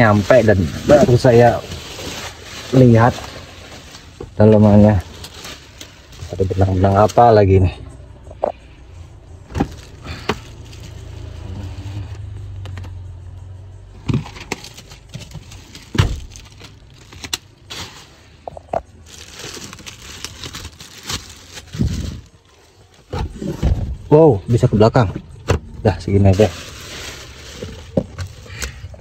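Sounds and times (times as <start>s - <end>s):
plastic covers rustling: 0.0s - 7.7s, 14.2s - 23.5s, 25.9s - 29.0s.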